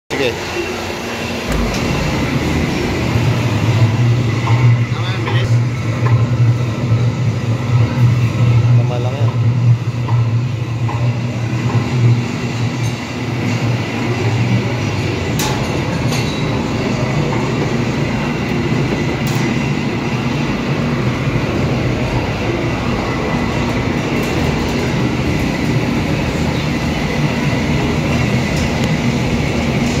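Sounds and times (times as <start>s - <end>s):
mixer motor humming: 0.2s - 15.4s.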